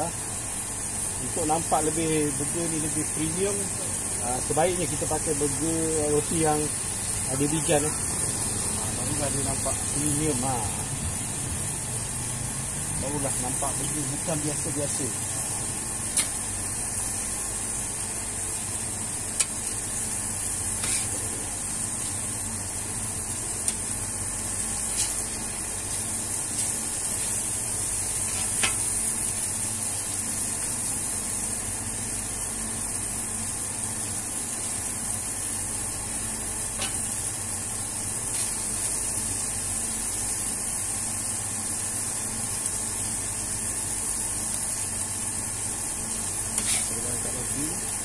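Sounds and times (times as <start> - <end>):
burgers sizzling on griddle: 0.0 - 48.0
metal spatula scraping: 20.8 - 21.3, 46.6 - 47.0.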